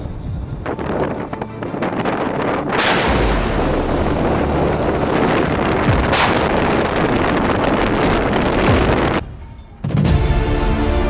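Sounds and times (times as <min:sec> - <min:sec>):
low rumble: 0:00.0 - 0:09.5
naval gun firing: 0:02.8 - 0:03.6, 0:06.0 - 0:07.0.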